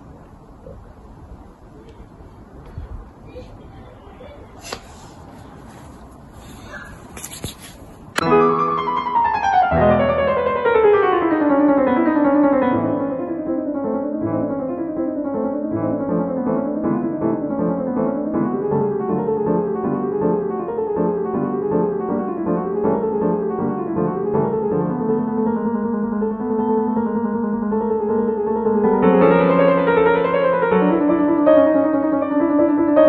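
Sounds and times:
piano music: 8.2 - 33.0.

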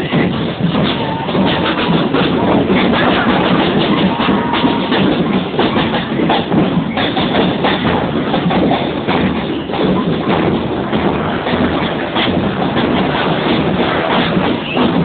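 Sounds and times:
drums striking: 0.0 - 15.0
marching band music: 0.0 - 15.0.

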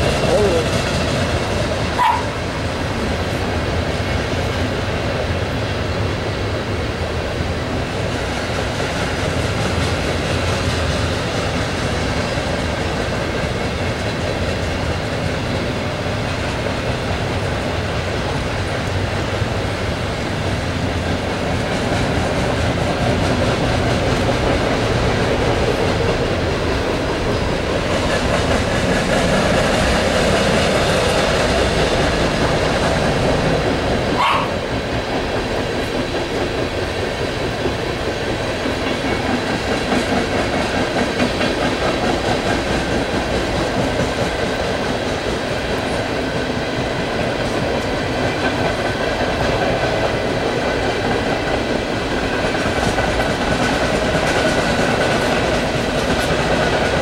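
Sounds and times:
freight train rumbling on rails: 0.0 - 57.0
dog barking: 2.0 - 2.4, 34.2 - 34.6.

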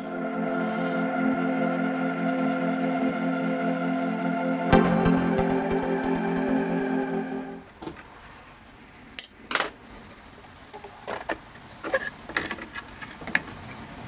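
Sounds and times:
background music: 0.0 - 7.7.

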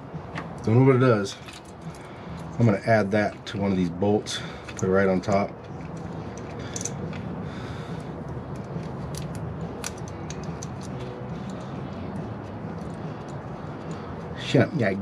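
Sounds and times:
steady low hum: 0.0 - 15.0
pliers clicking and snipping: 8.5 - 11.6.

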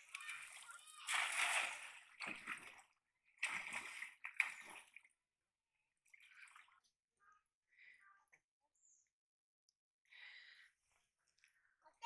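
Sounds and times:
shallow water splashing: 0.0 - 5.2, 6.0 - 6.9.

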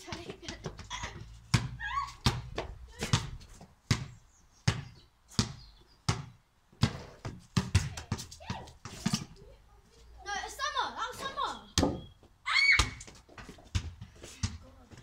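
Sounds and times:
basketball bouncing: 0.0 - 9.3.

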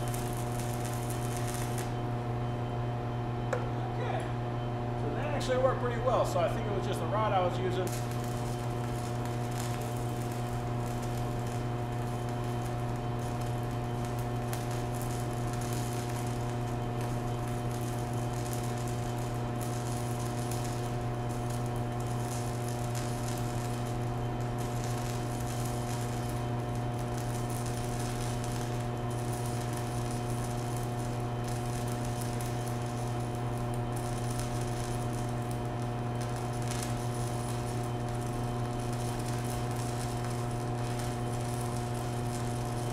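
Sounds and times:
welding arc humming and crackling: 0.0 - 42.9.

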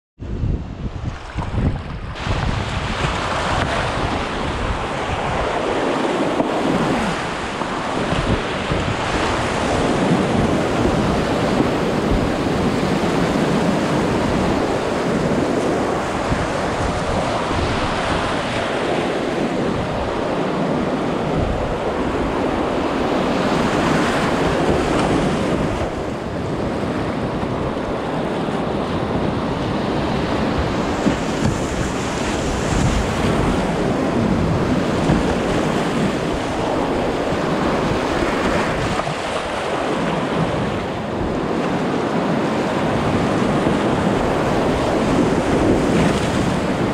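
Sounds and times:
whitewater rapids rushing: 30.0 - 46.9.

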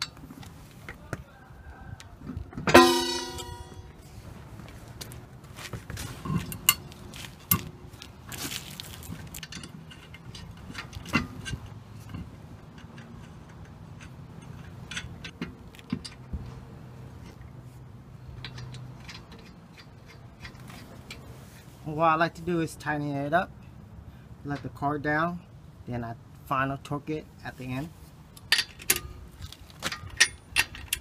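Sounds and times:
metal clicks and clinks: 9.4 - 16.3, 18.4 - 21.2.

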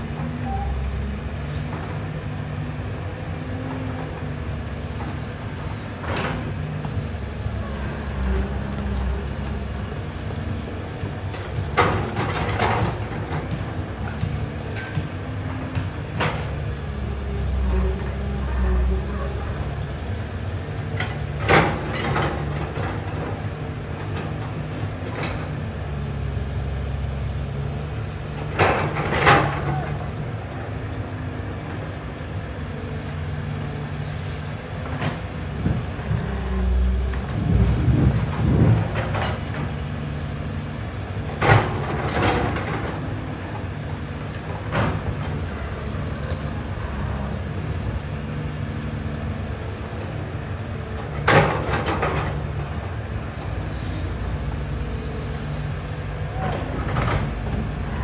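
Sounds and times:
excavator diesel engine running: 0.0 - 58.0
sharp metal knocks and clanks: 11.6 - 16.5.

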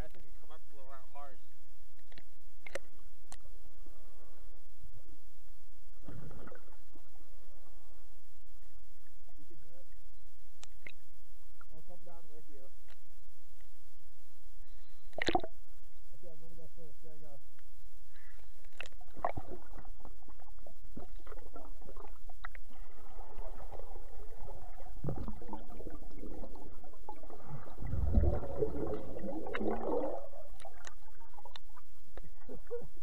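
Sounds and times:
deep underwater rumble: 0.0 - 33.0
small clicks: 2.0 - 3.5, 18.6 - 19.0
underwater gurgling and bubbling: 19.0 - 33.0.

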